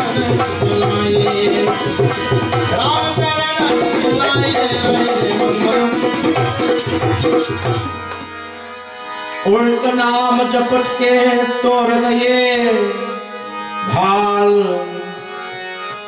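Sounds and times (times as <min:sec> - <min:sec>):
fast percussion beat: 0:00.0 - 0:07.9
harmonium playing reedy chords: 0:00.0 - 0:16.0.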